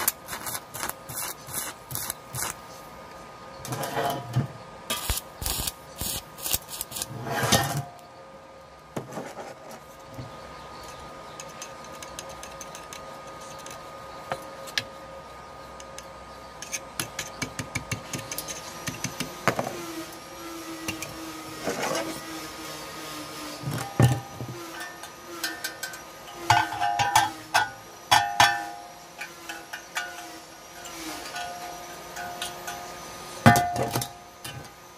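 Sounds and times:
arc welding crackling: 0.0s - 3.0s, 4.9s - 7.3s
welding machine hum: 0.0s - 3.0s, 3.6s - 7.8s
steady humming tone: 0.0s - 34.9s.

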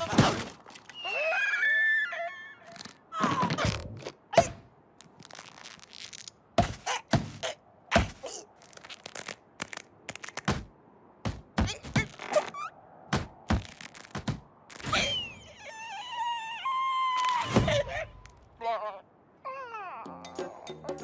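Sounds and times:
cartoon knocks and thunks: 6.6s - 8.2s, 10.5s - 12.2s, 13.1s - 14.5s.

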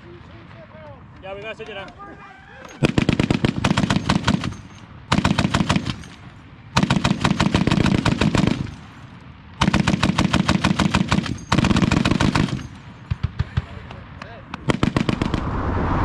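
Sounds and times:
heavy machine gun firing bursts: 2.8s - 6.0s, 6.8s - 8.8s, 9.6s - 13.5s.

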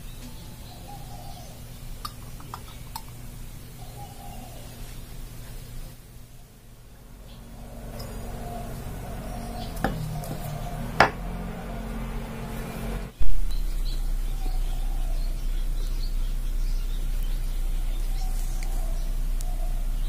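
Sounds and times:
steady low hum: 0.0s - 20.0s
faint bird chirps: 13.2s - 20.0s.

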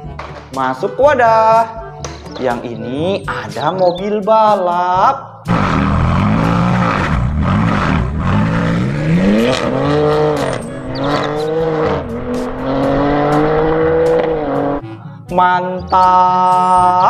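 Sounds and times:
car engine revving: 5.5s - 14.8s.

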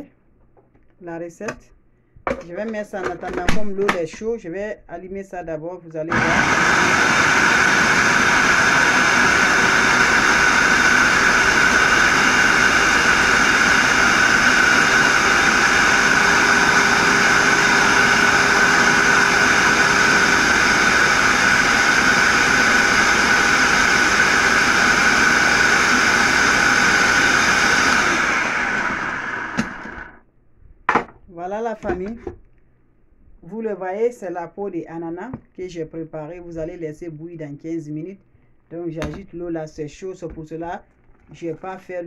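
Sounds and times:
blender whirring: 6.1s - 30.2s.

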